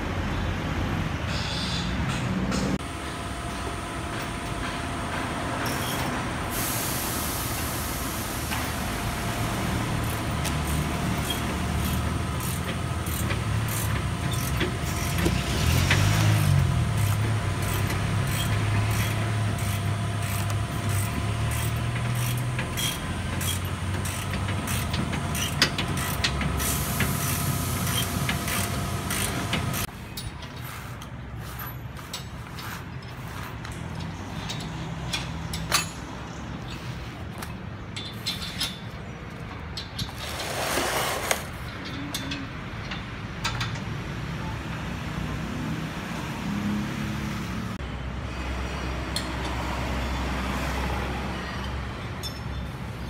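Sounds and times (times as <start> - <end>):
motor vehicle engine drone: 2.1 - 29.9.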